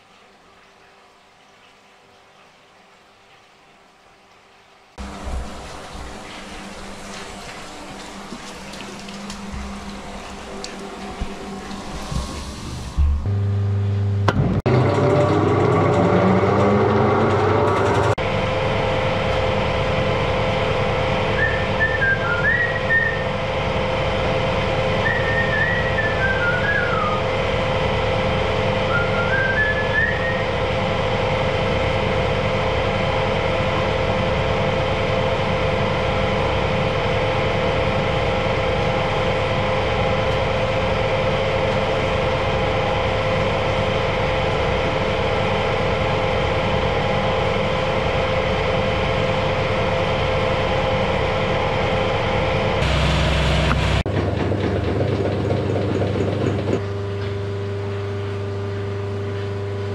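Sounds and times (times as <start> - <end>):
machine motor droning: 5.0 - 59.9
person whistling a tune: 21.4 - 23.2, 25.0 - 27.2, 28.9 - 30.4.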